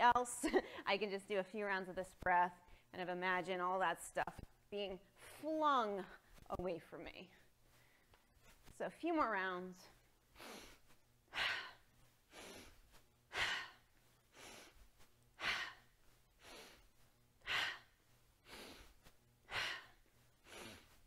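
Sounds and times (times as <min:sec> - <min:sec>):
woman breathing hard: 0:10.3 - 0:21.0.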